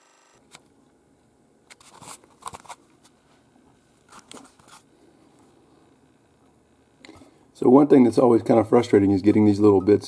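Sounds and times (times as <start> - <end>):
crinkling and clicking of handled objects: 1.7 - 3.2, 4.0 - 5.5.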